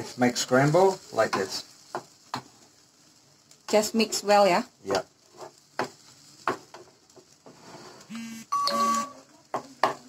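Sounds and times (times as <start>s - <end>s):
spatula scraping in frying pan: 5.2s - 8.1s
chime-like tone: 8.5s - 9.2s.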